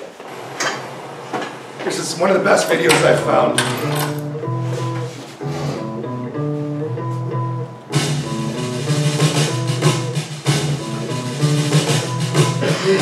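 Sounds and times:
held chords over bass line: 3.0 - 13.0
drums and cymbals: 7.9 - 13.0.

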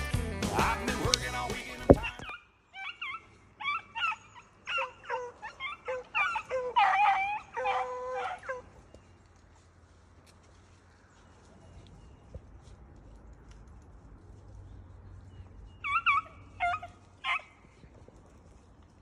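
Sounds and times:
dogs barking in high yelps: 2.0 - 9.2, 15.2 - 17.9.

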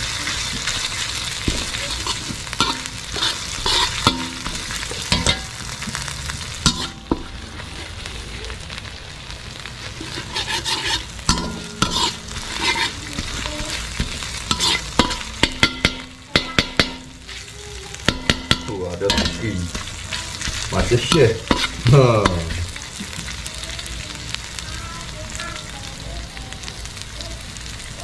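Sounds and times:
spatula scraping and clicking on pan: 0.0 - 8.1, 9.9 - 23.2
paste sizzling in hot oil: 0.0 - 28.0.

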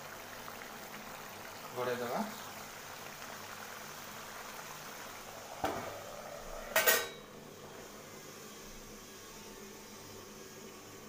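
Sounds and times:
metal clatter with ringing: 6.8 - 7.2.

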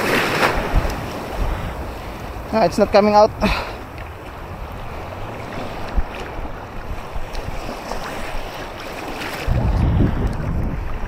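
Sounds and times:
sea surf washing: 0.0 - 11.0
wind buffeting microphone: 0.0 - 11.0
heavy low rumble: 9.5 - 10.8.

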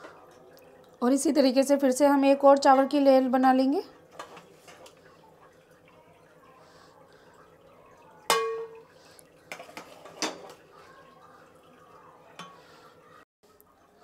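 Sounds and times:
metal utensil clinking on pot: 8.3 - 8.8, 9.5 - 10.6.

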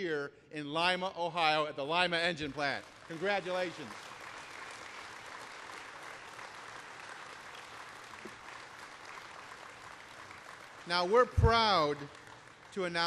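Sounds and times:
audience applauding: 2.5 - 13.0.

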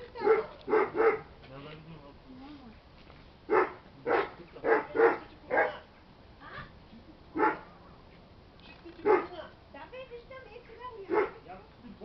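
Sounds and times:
dog barking: 0.2 - 1.3, 3.5 - 5.9, 7.4 - 7.7, 9.0 - 9.5, 11.1 - 11.4.

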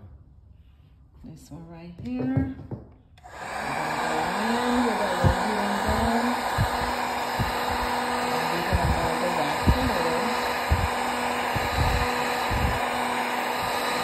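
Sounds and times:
heat gun blowing air: 3.2 - 14.0
low bumps: 4.5 - 12.9.

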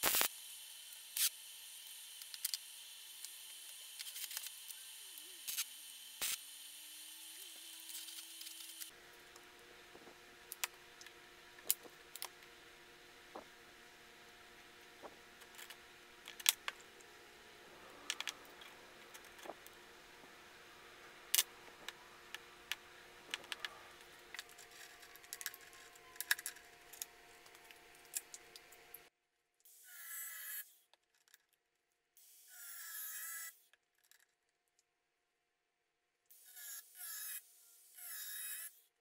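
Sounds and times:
faint steady hum: 2.2 - 29.1.

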